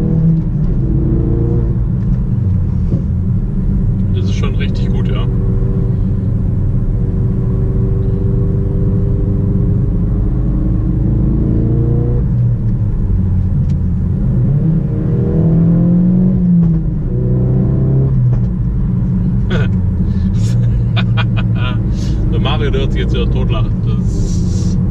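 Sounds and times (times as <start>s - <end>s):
car engine accelerating: 0.0s - 24.9s
exhaust crack: 18.1s - 24.8s.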